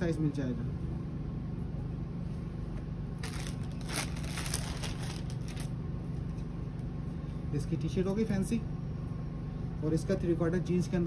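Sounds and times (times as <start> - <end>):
steady low hum: 0.0 - 11.0
clothes and plastic rustling: 2.7 - 6.6.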